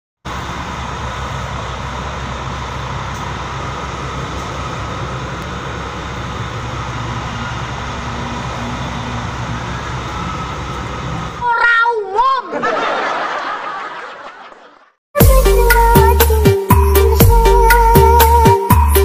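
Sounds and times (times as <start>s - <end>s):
traffic noise: 0.2s - 12.1s
diesel coach engines humming: 0.2s - 14.2s, 15.2s - 19.0s.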